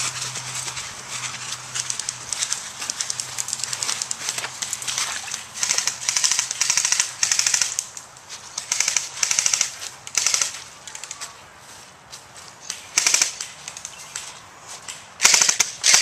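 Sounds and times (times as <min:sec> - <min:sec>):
airsoft rifles firing bursts: 0:05.6 - 0:07.9, 0:08.6 - 0:10.6, 0:12.9 - 0:13.9, 0:15.2 - 0:16.0.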